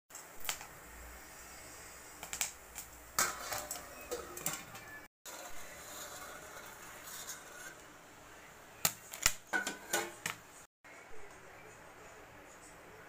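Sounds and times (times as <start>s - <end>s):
popcorn popping in a pan: 0.1s - 0.8s, 2.2s - 4.8s.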